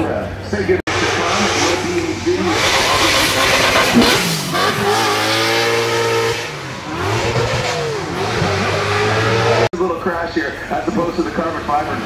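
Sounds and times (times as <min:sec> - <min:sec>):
race car engine at high revs: 0:00.9 - 0:09.7.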